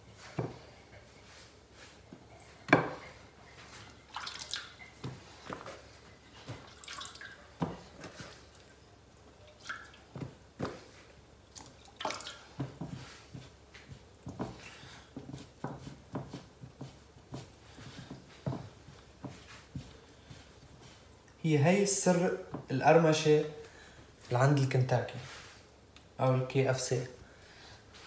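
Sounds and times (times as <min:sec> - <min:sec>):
soft pats in flour: 0:00.0 - 0:09.3, 0:09.9 - 0:26.2
water drips and splashes: 0:03.9 - 0:05.7, 0:06.4 - 0:10.4, 0:11.5 - 0:12.8.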